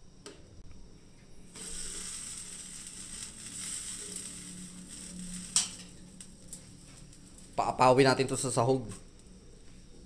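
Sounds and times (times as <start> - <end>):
soup boiling in a pan: 1.5 - 7.7.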